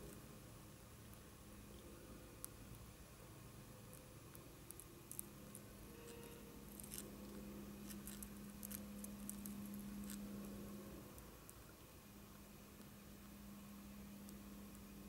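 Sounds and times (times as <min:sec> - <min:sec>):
low steady hum: 0:00.0 - 0:15.0
hornet clicking and scratching paper: 0:04.8 - 0:10.4.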